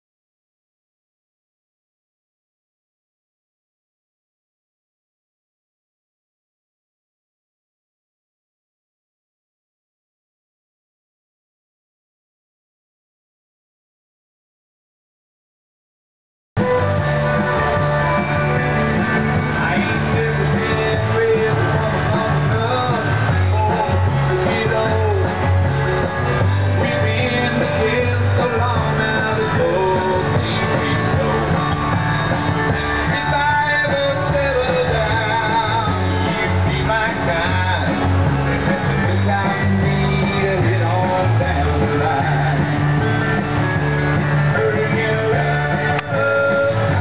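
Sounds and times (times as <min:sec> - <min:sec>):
pulsing bass line: 0:16.6 - 0:47.0
rock music with singing: 0:16.6 - 0:47.0.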